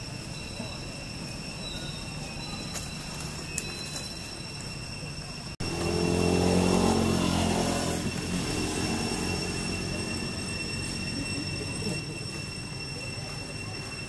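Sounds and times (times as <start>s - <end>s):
steady high-pitched tones: 0.0s - 14.0s
passing vehicle engine hum: 5.5s - 12.6s.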